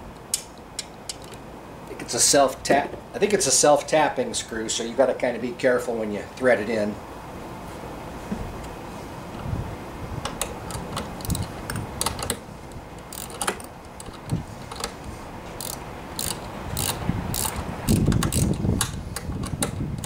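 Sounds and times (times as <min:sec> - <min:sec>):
ratcheting wrench clicking: 0:10.3 - 0:12.4, 0:13.0 - 0:15.0, 0:15.6 - 0:20.0.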